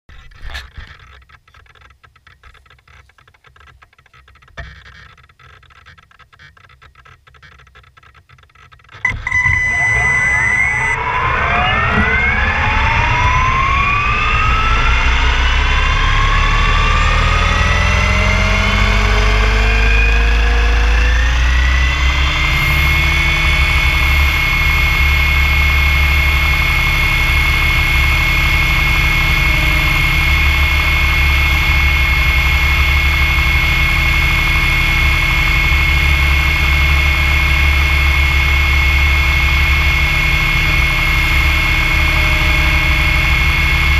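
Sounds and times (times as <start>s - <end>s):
electric motor whine: 9.0s - 43.9s
low rotor rumble: 9.0s - 43.9s.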